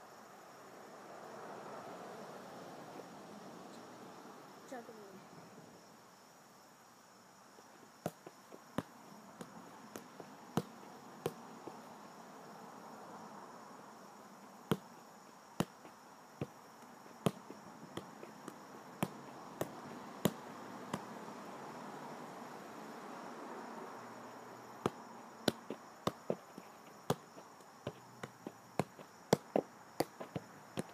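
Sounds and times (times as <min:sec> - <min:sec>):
high insect chorus: 0:00.0 - 0:30.9
soccer ball taps: 0:08.0 - 0:11.8, 0:14.7 - 0:14.9, 0:17.2 - 0:21.1, 0:24.8 - 0:30.9.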